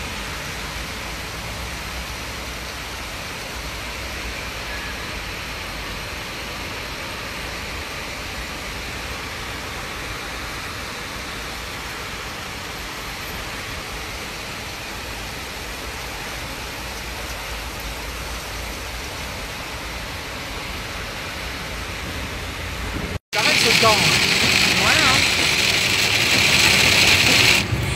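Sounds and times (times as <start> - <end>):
heavy rain: 5.6 - 27.9.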